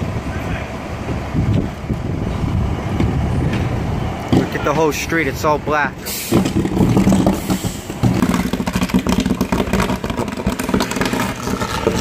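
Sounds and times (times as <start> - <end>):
street traffic: 0.0 - 12.0
vehicle engine running: 6.3 - 12.0.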